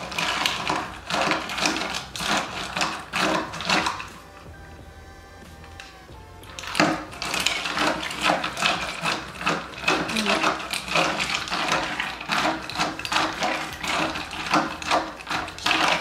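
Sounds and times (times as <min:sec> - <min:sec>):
ice cubes clinking in plastic cup: 0:00.0 - 0:04.2, 0:06.5 - 0:16.0.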